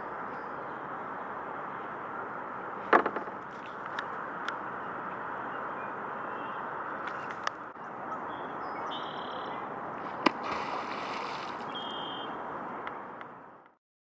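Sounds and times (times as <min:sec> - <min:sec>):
water splashing: 0:09.9 - 0:12.3
beaver tail slapping water: 0:10.0 - 0:11.8
lapping water: 0:10.0 - 0:11.8.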